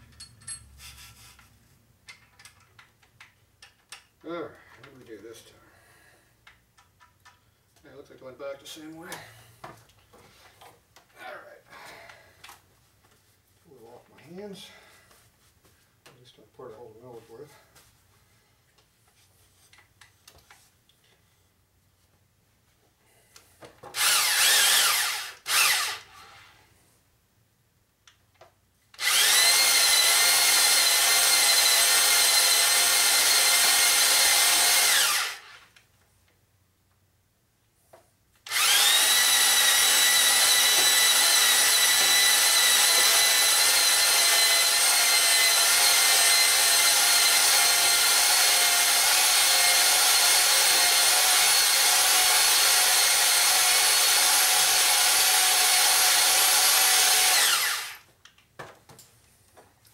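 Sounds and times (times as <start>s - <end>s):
electric drill whining: 23.9s - 26.6s, 29.0s - 35.8s, 38.4s - 58.1s.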